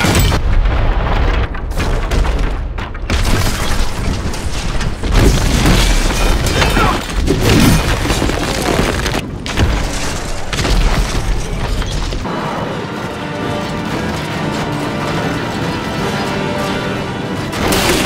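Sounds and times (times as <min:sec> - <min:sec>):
heavy booms and crashes: 0:00.0 - 0:12.3
film score music: 0:09.3 - 0:18.0.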